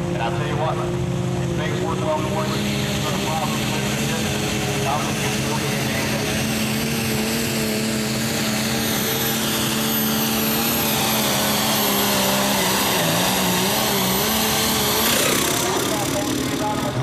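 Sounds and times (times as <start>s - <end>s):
tractor engine running under load: 0.0s - 17.0s.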